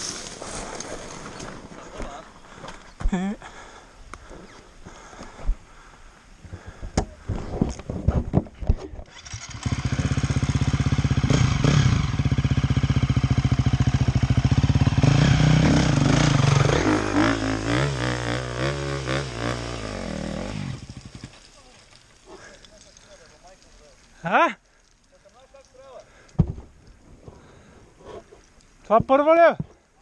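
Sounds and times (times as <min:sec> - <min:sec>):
motorcycle engine running loudly: 0:09.1 - 0:21.2.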